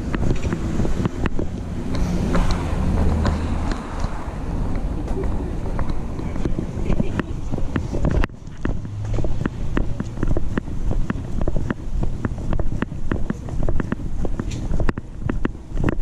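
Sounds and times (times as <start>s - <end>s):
footsteps on wet sidewalk: 0.0s - 16.0s
wind rumble on microphone: 0.0s - 16.0s
camera knocking ticks: 5.8s - 16.0s.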